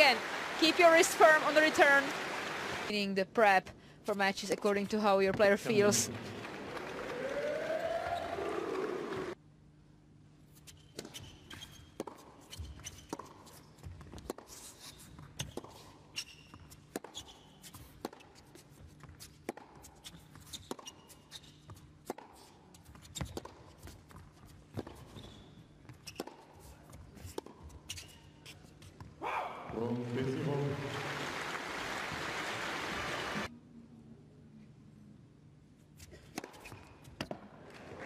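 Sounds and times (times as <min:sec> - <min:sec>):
shoes squeaking on court: 0:10.6 - 0:29.2, 0:36.0 - 0:37.5.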